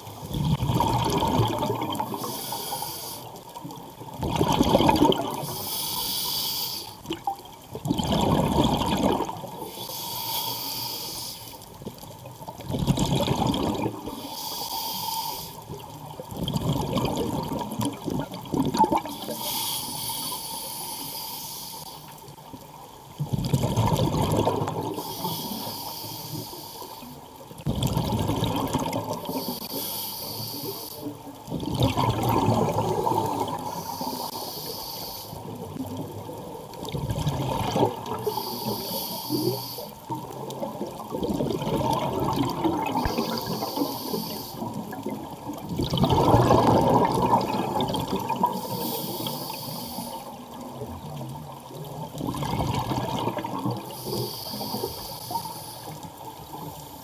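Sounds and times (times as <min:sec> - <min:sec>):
exhaled bubbles rumbling: 0:00.0 - 0:02.3, 0:03.6 - 0:05.6, 0:07.0 - 0:09.7, 0:12.4 - 0:14.2, 0:15.7 - 0:19.3, 0:22.6 - 0:25.2, 0:27.6 - 0:29.4, 0:31.3 - 0:33.9, 0:35.4 - 0:38.4, 0:40.0 - 0:49.2, 0:50.3 - 0:54.8
regulator inhale hissing: 0:02.0 - 0:03.4, 0:05.4 - 0:07.1, 0:09.6 - 0:11.8, 0:14.1 - 0:15.8, 0:19.1 - 0:22.3, 0:25.0 - 0:27.3, 0:29.2 - 0:31.2, 0:33.5 - 0:35.7, 0:38.1 - 0:40.0, 0:42.9 - 0:44.9, 0:48.4 - 0:50.5, 0:53.7 - 0:57.0.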